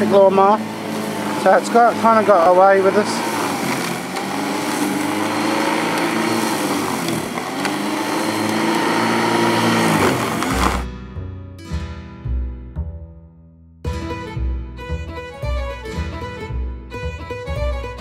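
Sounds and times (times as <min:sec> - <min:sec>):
electric lawn mower cutting grass: 0:00.0 - 0:10.8
background music: 0:09.2 - 0:18.0.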